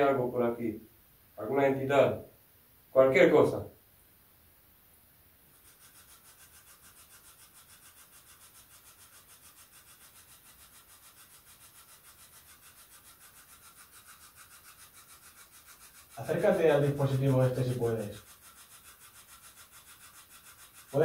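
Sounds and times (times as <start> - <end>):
pulsing radio static hiss: 13.3 - 18.4, 20.4 - 21.0.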